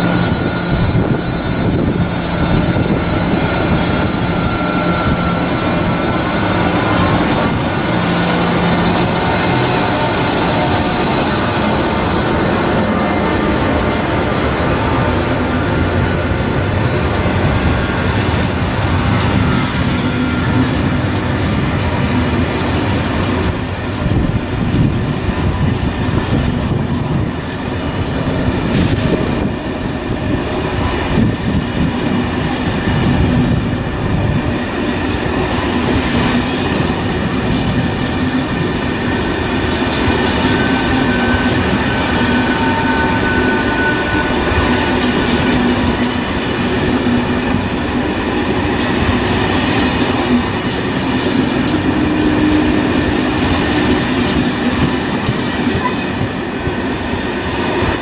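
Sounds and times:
train wheels rumbling and clattering: 0.0 - 58.0
high wheel squeals: 40.0 - 54.0, 54.9 - 58.0.

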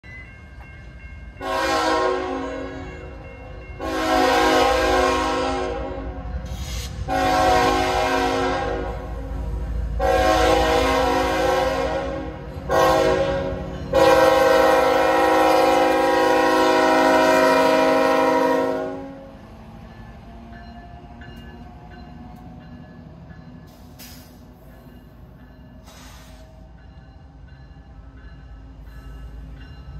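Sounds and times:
locomotive air horn blasts: 1.4 - 3.1, 3.8 - 6.3, 6.9 - 9.2, 10.0 - 19.3.

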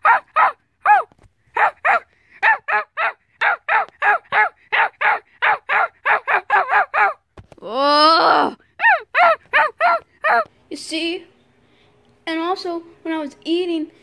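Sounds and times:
high-pitched yapping barks: 0.0 - 7.2, 8.8 - 10.5.

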